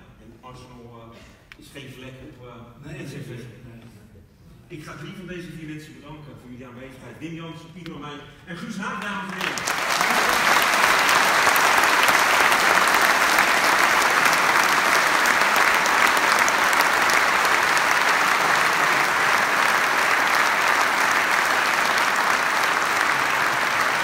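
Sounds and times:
audience applauding: 0:09.0 - 0:24.0.

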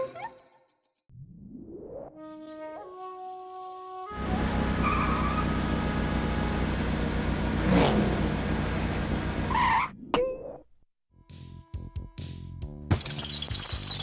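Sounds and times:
cartoon car engine: 0:04.2 - 0:10.0.

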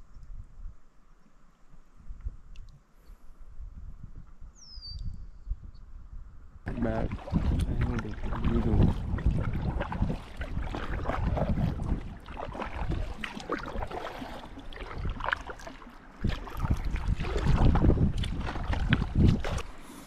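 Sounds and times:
wind buffeting the microphone: 0:00.0 - 0:00.9, 0:01.7 - 0:19.8
water splashing around a kayak: 0:06.7 - 0:20.0.

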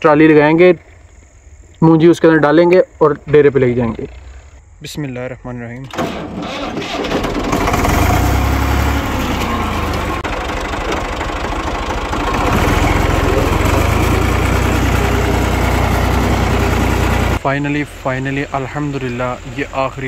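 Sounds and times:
tractor engine running: 0:06.0 - 0:20.0.

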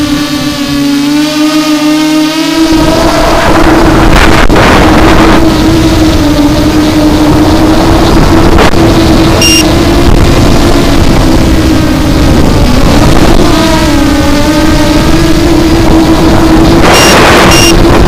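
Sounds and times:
drone motors and propellers whining: 0:00.0 - 0:18.0
short high beep: 0:09.4 - 0:09.7, 0:16.9 - 0:17.8.

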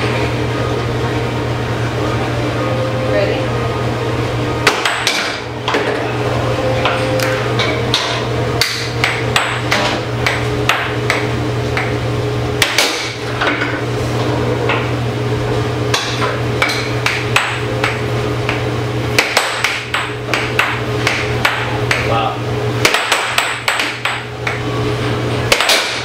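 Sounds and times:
air blower hum: 0:00.0 - 0:26.0
air hockey puck striking mallets: 0:04.6 - 0:06.0, 0:06.8 - 0:12.0, 0:12.6 - 0:13.7, 0:15.9 - 0:22.1, 0:22.8 - 0:24.6, 0:25.5 - 0:26.0.

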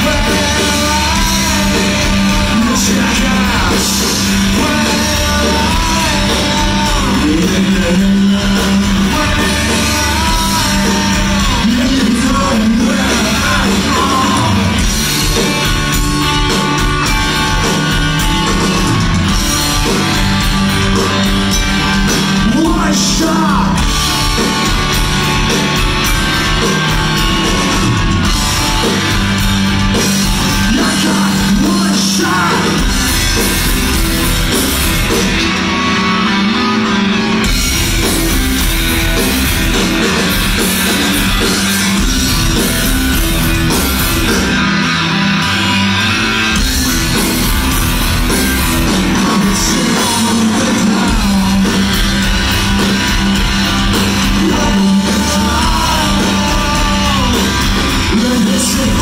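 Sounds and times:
person singing: 0:00.0 - 0:15.5, 0:21.9 - 0:24.8, 0:29.9 - 0:33.6, 0:48.8 - 0:52.5, 0:53.9 - 0:59.0
live rock band playing: 0:00.0 - 0:59.0.

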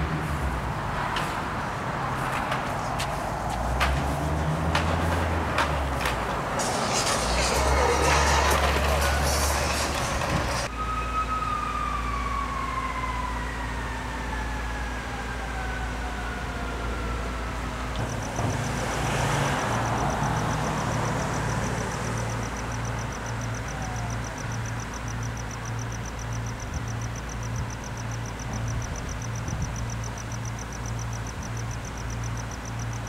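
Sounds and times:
rapid high pulsing: 0:01.7 - 0:10.7
siren tone falling in pitch: 0:10.7 - 0:17.1.

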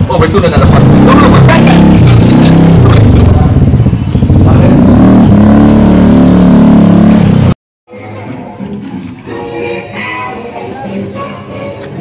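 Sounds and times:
motorcycle engine running: 0:00.0 - 0:07.6.

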